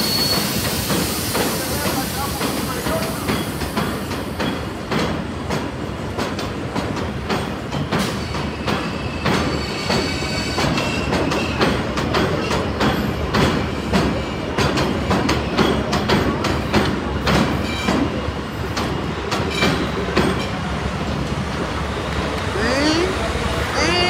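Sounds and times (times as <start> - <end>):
faint wheel squeal: 0.0 - 0.8
train wheels clacking on rails: 0.0 - 22.6.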